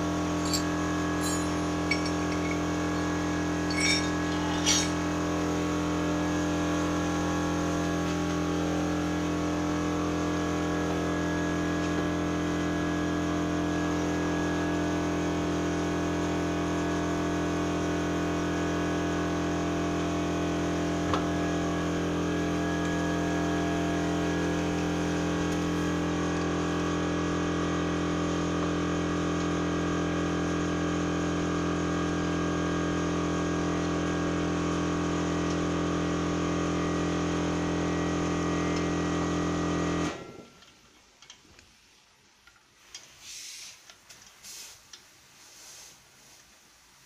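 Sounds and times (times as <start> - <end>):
machine humming: 0.0 - 5.8.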